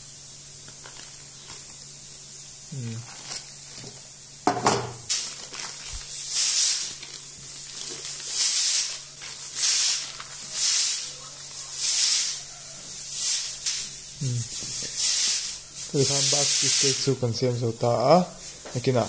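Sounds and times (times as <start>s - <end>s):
parchment paper crinkling: 0.5s - 2.1s, 2.9s - 4.2s, 5.1s - 11.9s.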